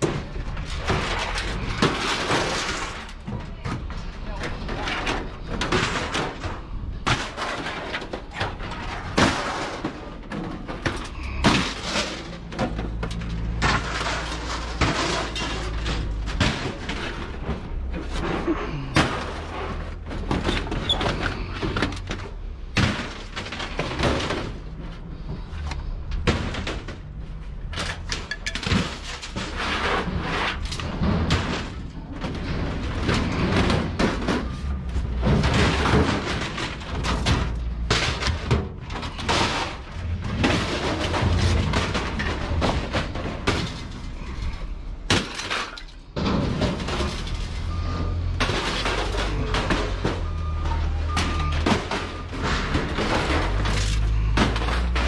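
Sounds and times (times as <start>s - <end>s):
scrap metal clanking and banging: 0.0s - 55.0s.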